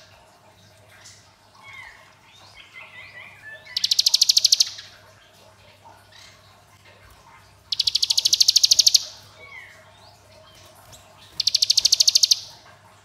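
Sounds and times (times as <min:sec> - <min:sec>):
bird twittering: 0:01.6 - 0:05.0, 0:07.7 - 0:12.6
bird rattling trill: 0:03.8 - 0:04.8, 0:07.7 - 0:09.2, 0:11.1 - 0:12.5.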